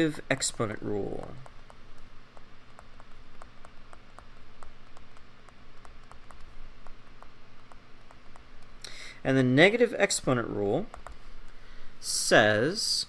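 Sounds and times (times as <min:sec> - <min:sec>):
low electrical hum: 0:00.0 - 0:13.0
stylus tapping on tablet screen: 0:00.1 - 0:09.0, 0:10.7 - 0:11.6.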